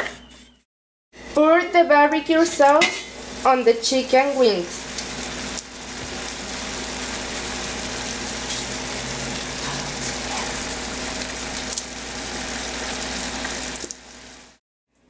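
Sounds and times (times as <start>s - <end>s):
chicken wings sizzling in pan: 1.5s - 14.6s
sauce pouring: 4.8s - 14.2s.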